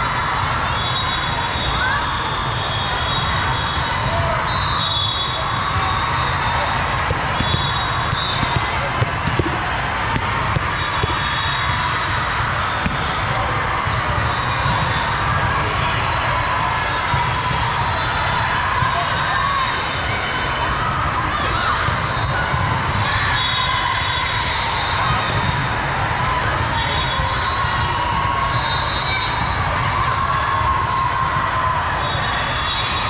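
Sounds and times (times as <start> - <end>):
din of many voices: 0.0 - 33.0
volleyballs hit and bouncing: 6.8 - 17.6, 25.0 - 27.0.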